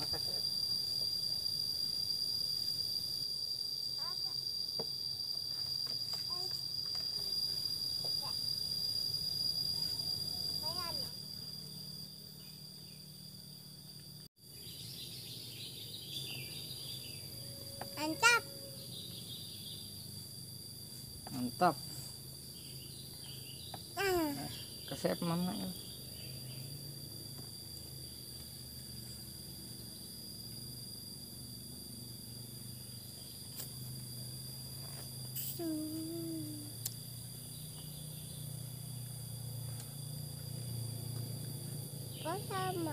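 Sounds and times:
high-pitched insect drone: 0:00.0 - 0:42.9
birds twittering: 0:14.6 - 0:17.4, 0:25.8 - 0:26.8.

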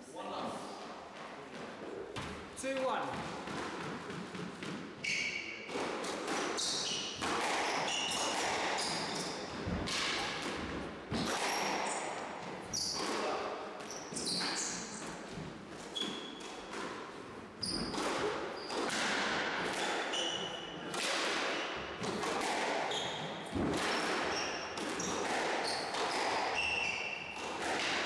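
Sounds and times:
squash ball striking rackets and walls: 0:01.2 - 0:28.0
shoes squeaking on wooden floor: 0:04.0 - 0:05.7, 0:06.6 - 0:09.8, 0:11.1 - 0:16.7, 0:17.6 - 0:18.8, 0:22.9 - 0:27.4.

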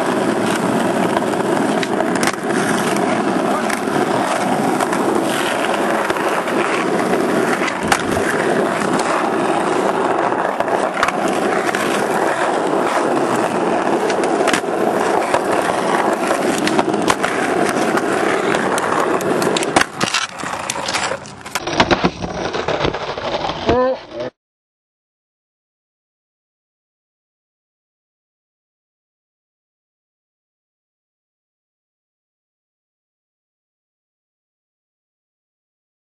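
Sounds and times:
skateboard clacks: 0:00.0 - 0:24.3
skateboard wheels rolling on asphalt: 0:00.0 - 0:24.3.

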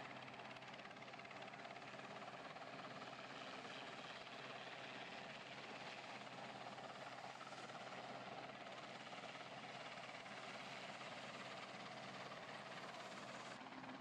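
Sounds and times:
helicopter hovering overhead: 0:00.0 - 0:14.0.

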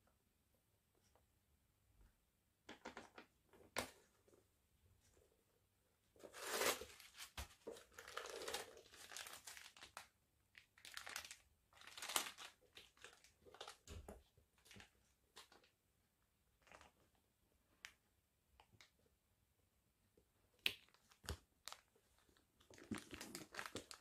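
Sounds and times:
packing wrap crinkling: 0:06.2 - 0:14.0, 0:20.8 - 0:24.0.

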